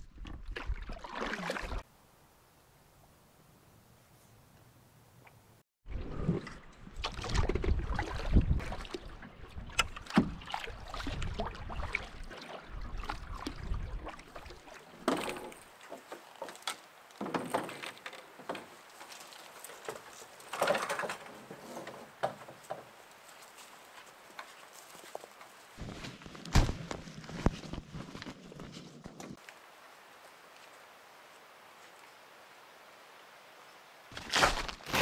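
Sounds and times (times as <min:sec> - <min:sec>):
paddle strokes in water: 0:06.2 - 0:25.8.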